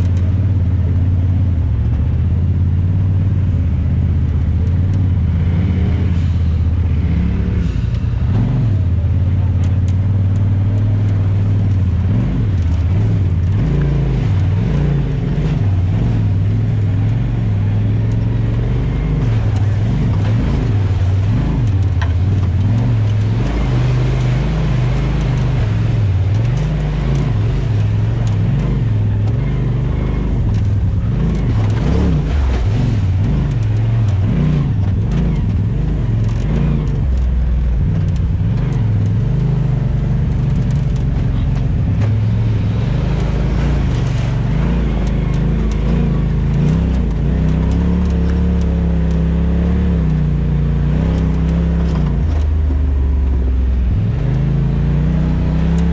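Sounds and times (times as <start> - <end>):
off-road vehicle engine revving: 0.0 - 55.9.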